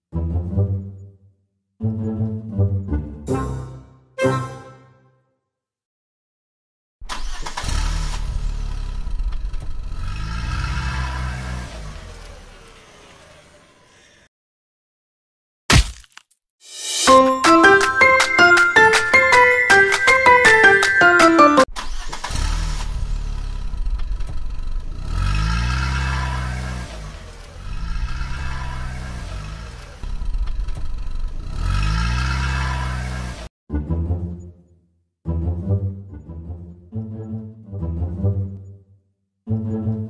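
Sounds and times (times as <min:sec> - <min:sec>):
vehicle engine revving: 0:07.2 - 0:14.1, 0:22.0 - 0:33.5.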